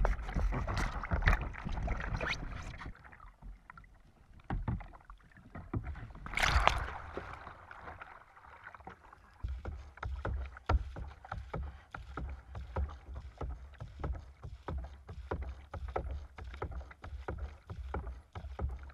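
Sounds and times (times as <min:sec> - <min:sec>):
paddle strokes splashing: 0:00.0 - 0:18.9
water slapping against hull: 0:00.0 - 0:18.9
loud water splash: 0:06.2 - 0:08.2.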